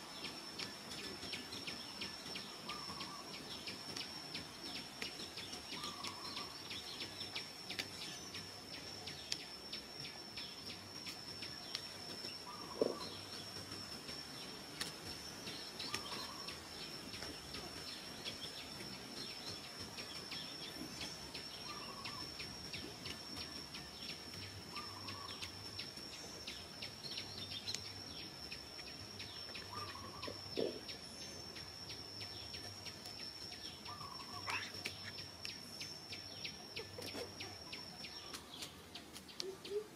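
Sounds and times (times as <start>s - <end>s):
high-pitched insect trill: 0.0s - 39.9s
bird call: 29.6s - 31.0s, 33.8s - 35.2s.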